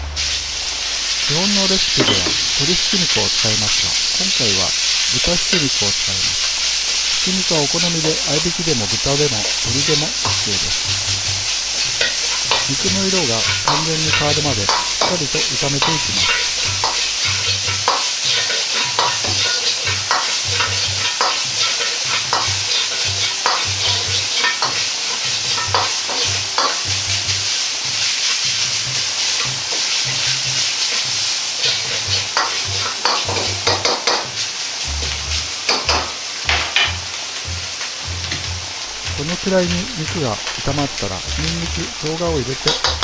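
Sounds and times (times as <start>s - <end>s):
metal ladle scraping wok: 0.0s - 8.4s, 9.4s - 26.8s, 30.9s - 33.5s
meat sizzling in hot oil: 0.0s - 43.0s.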